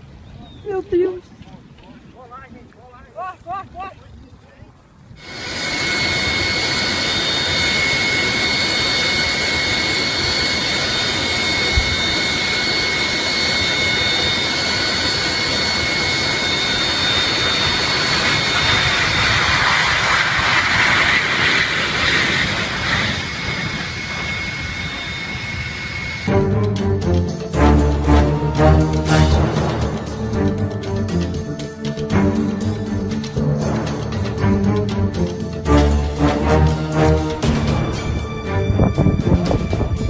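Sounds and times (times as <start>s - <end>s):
jet engines whining: 5.2s - 40.0s
rushing noise: 5.2s - 40.0s.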